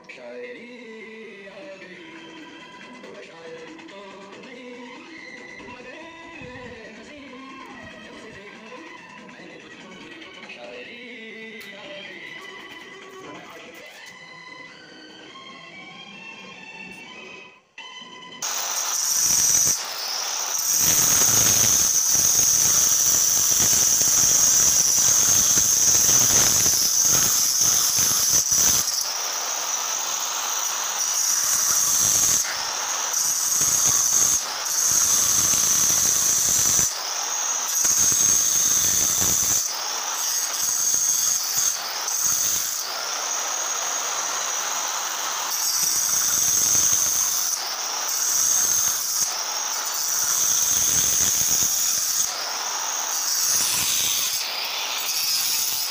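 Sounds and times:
marble cutter motor whine: 13.8 - 55.9
blade grinding stone: 18.4 - 55.9.

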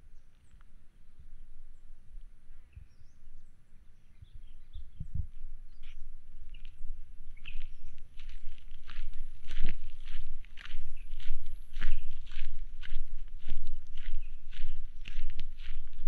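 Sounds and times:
small birds chirping: 0.0 - 16.0
low rumble: 4.7 - 16.0.

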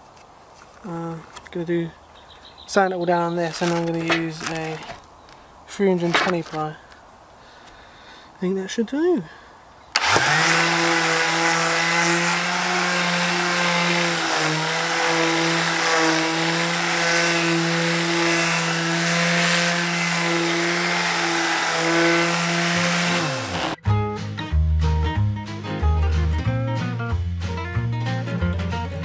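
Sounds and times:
electric sander sanding wood: 10.0 - 23.8.

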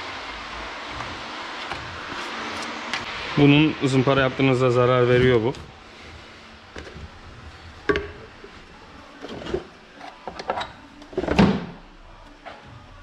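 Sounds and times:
objects knocking and clunking: 6.7 - 7.2, 7.8 - 8.6, 9.2 - 11.8.

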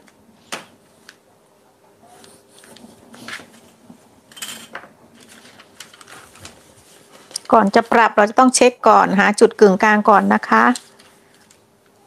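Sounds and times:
paper rustling: 5.1 - 7.5.

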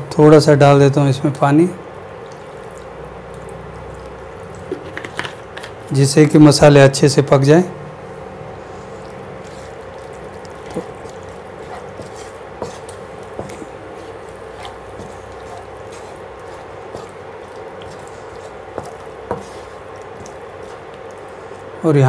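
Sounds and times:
gentle sizzle: 0.9 - 5.9, 7.9 - 22.0
spatula stirring vegetables: 8.2 - 21.8.

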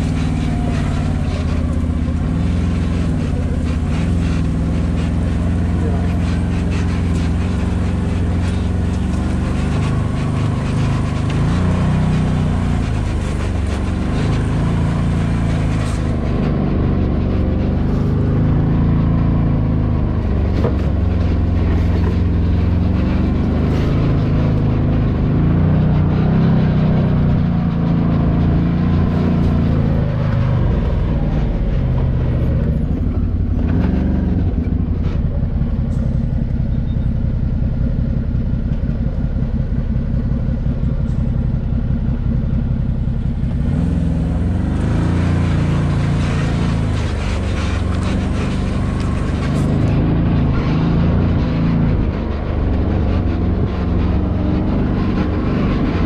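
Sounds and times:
off-road vehicle engine revving: 0.0 - 56.0.

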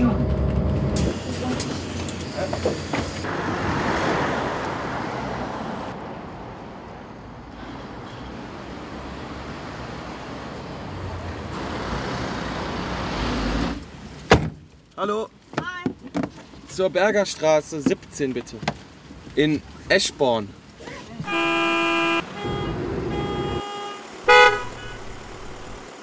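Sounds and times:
car low rumble: 0.0 - 2.5, 24.3 - 26.0
passing road vehicles hiss: 0.3 - 14.2.

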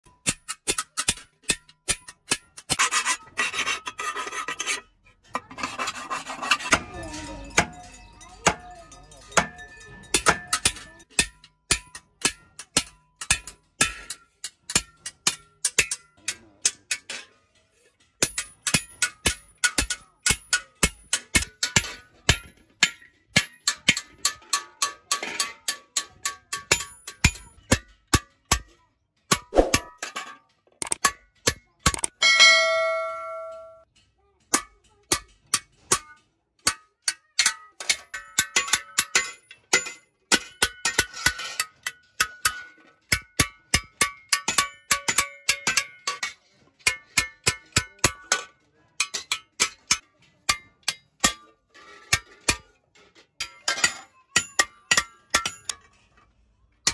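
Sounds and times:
hammer striking metal blade: 0.0 - 2.8, 9.3 - 17.1, 18.2 - 27.8, 29.3 - 30.1, 30.8 - 33.9
ringing metallic blow: 32.2 - 33.8.

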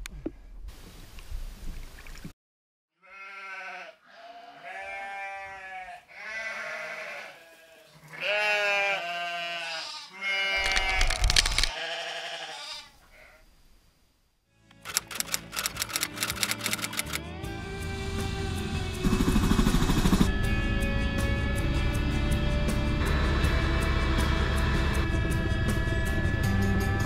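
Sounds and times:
animal bleating: 3.0 - 13.4.

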